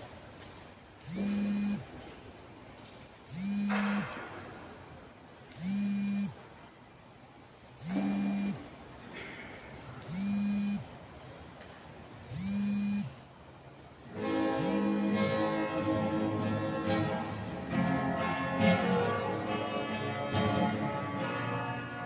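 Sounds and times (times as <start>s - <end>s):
small electric motor whirring: 1.0s - 1.8s, 3.3s - 4.1s, 5.6s - 6.3s, 7.8s - 8.6s, 10.0s - 10.8s, 12.3s - 13.1s, 14.6s - 15.2s.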